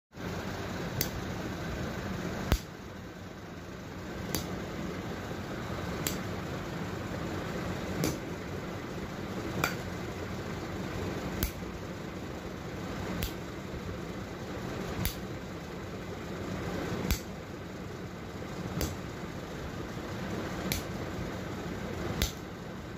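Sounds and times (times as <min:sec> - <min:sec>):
steady low hiss: 0:00.2 - 0:22.9
rod smacking bare foot: 0:22.2 - 0:22.4.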